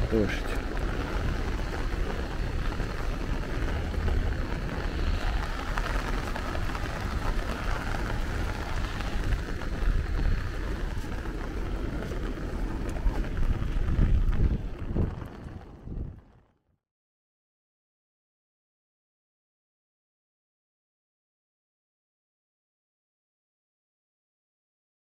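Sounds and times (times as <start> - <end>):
rain on an umbrella: 0.0 - 16.5
constant low rumble: 0.0 - 16.6.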